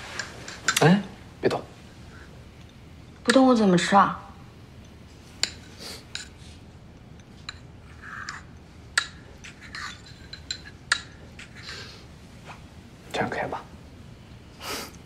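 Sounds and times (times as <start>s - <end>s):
spoon tapping and scraping bowl: 7.4s - 11.7s
spoon clinking porcelain bowl: 9.0s - 11.5s.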